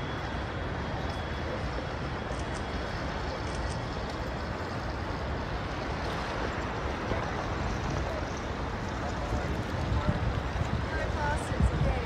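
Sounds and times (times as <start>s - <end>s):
city noise: 0.0s - 12.0s
wind buffeting microphone: 4.0s - 12.0s.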